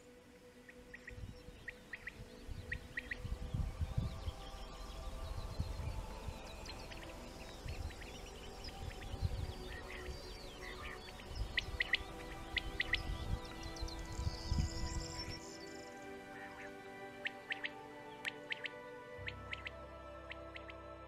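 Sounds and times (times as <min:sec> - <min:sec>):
wind rumbling on microphone: 0:00.0 - 0:16.2
small birds chirping: 0:00.0 - 0:21.0
soft music with sustained tones: 0:00.0 - 0:21.0
quail calling: 0:09.6 - 0:13.2, 0:16.3 - 0:20.8.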